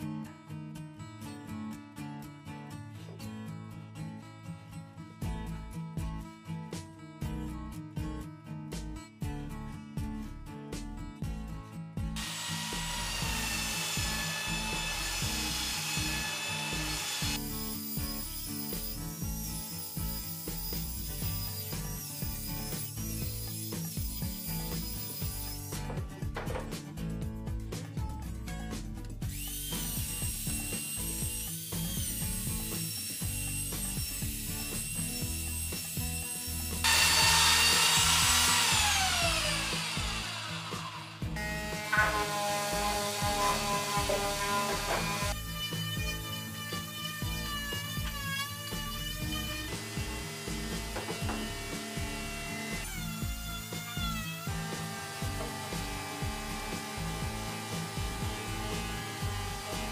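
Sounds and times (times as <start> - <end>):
power tool cutting wood: 12.2 - 26.7, 29.2 - 59.9.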